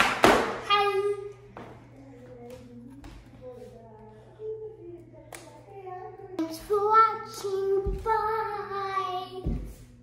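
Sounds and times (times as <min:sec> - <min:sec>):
child singing: 0:02.0 - 0:10.0.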